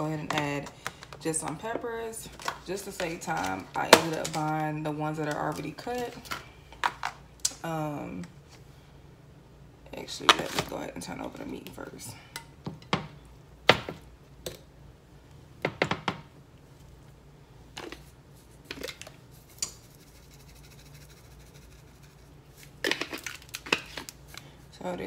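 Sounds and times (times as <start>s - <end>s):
seasoning bottle shaken: 19.4s - 22.4s.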